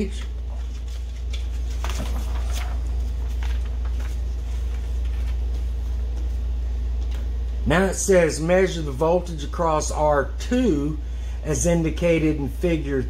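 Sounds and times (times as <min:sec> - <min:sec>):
paper rustling: 0:00.0 - 0:07.2
steady low hum: 0:00.0 - 0:13.0.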